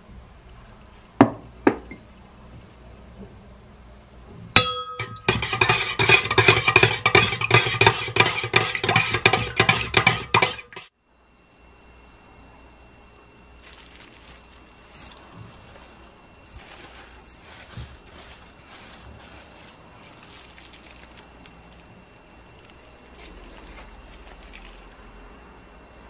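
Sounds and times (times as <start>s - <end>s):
metal bowl ringing: 4.6s - 7.5s
utensil scraping metal bowl: 4.9s - 10.9s.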